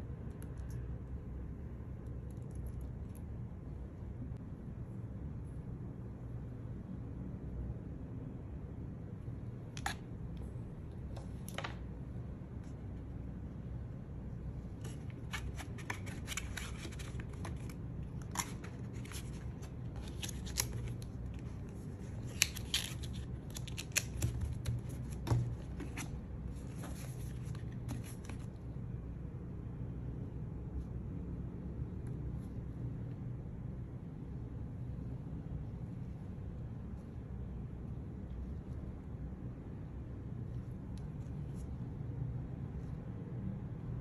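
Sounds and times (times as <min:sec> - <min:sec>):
low background noise: 0:00.0 - 0:44.0
paper packaging crinkling: 0:14.9 - 0:26.0.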